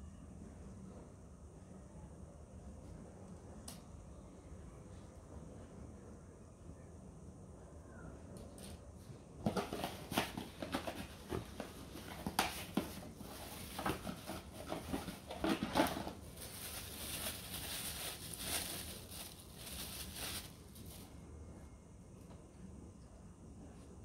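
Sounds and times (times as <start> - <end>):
plastic bag crinkling: 9.6 - 21.1.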